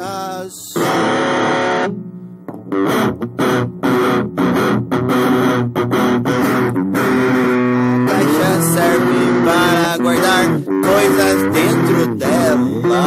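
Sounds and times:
guitar playing chopped chords: 0.0s - 13.0s.

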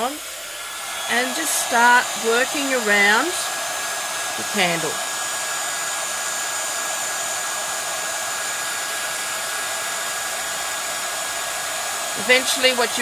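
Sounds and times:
heat gun blowing with high whine: 0.0s - 13.0s.

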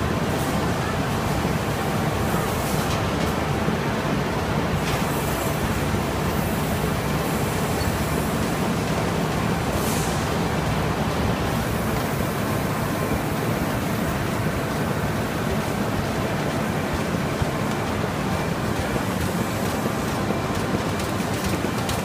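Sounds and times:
exhibition hall din: 0.0s - 22.0s
laminator machine running: 0.0s - 22.0s.

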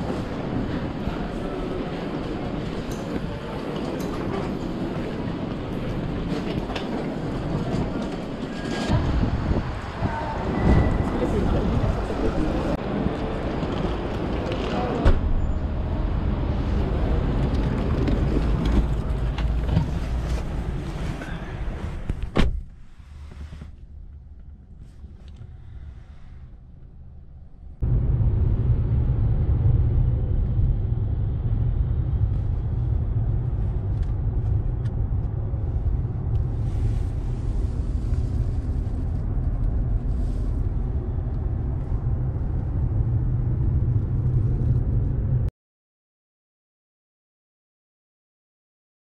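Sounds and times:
car road and engine rumble: 0.0s - 45.5s.

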